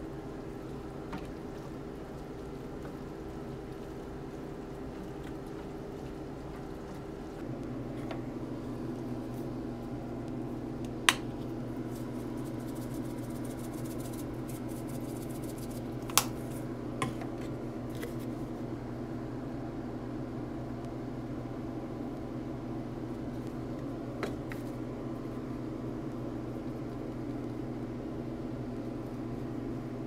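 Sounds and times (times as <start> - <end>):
steady low hum: 0.0 - 30.0
seasoning shakers shaken: 11.8 - 16.7.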